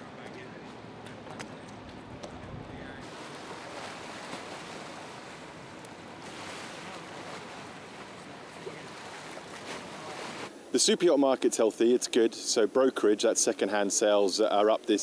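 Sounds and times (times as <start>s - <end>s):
wind noise: 1.9s - 5.3s
water washing: 3.0s - 10.5s.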